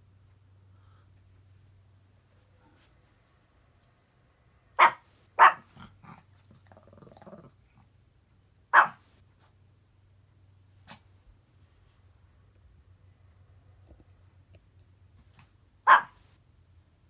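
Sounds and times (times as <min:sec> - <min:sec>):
small dog barking: 0:04.8 - 0:06.1, 0:08.7 - 0:09.1, 0:15.8 - 0:16.2
dog growling: 0:05.7 - 0:07.9.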